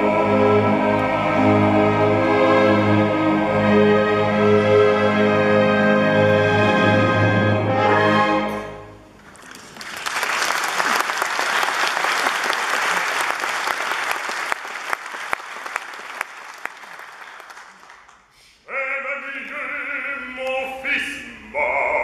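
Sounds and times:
audience applause: 9.2 - 18.3
man singing operatically: 18.6 - 22.0.

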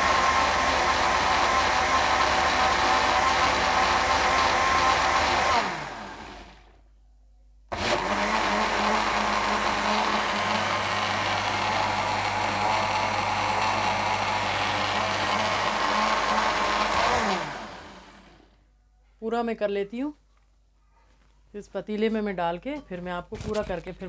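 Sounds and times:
blender motor running: 0.0 - 6.8, 7.7 - 18.6.

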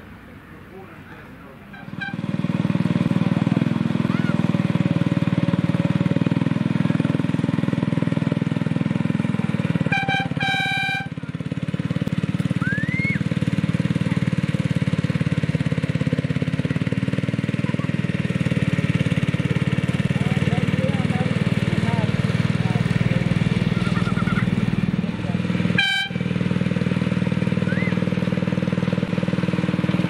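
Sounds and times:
locomotive horn toots: 1.7 - 2.4, 9.6 - 11.4, 25.6 - 26.5
small locomotive engine running: 1.8 - 30.0.

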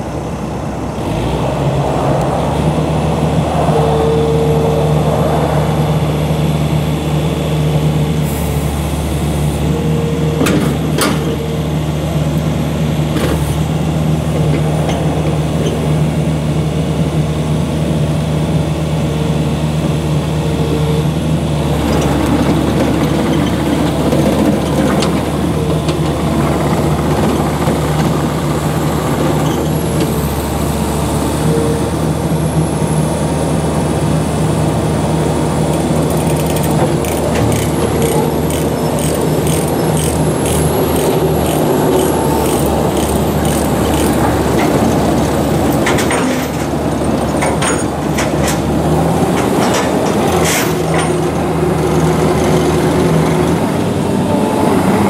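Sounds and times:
higher whine: 0.0 - 8.7
diesel engine running under load: 0.0 - 55.0.

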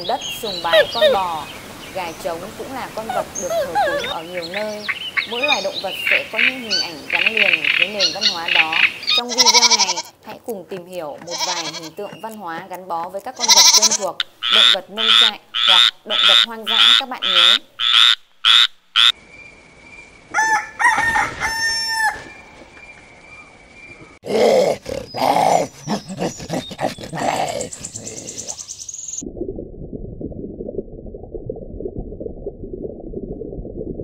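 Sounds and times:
mixed animal calls: 0.3 - 1.5, 3.0 - 10.2, 13.4 - 19.2, 24.0 - 28.9
frog croaking: 3.1 - 10.1, 13.4 - 19.2
rooster crowing: 20.3 - 22.4.

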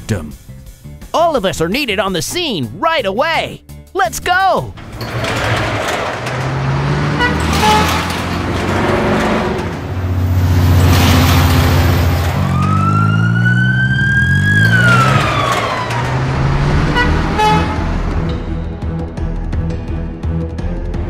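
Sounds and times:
cartoon vehicle engines running: 4.8 - 18.4
cartoon siren: 12.3 - 17.8.

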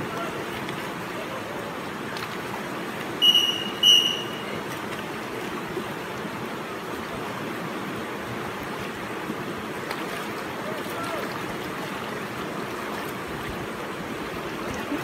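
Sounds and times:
river water rushing: 0.0 - 15.0
high-pitched whistle blasts: 3.2 - 4.4.

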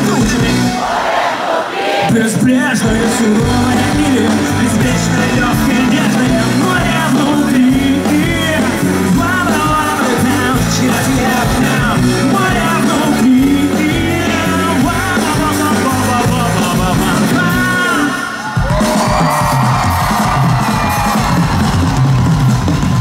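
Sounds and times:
live rock band playing: 0.0 - 1.0, 2.1 - 23.0
person singing: 2.1 - 19.6.

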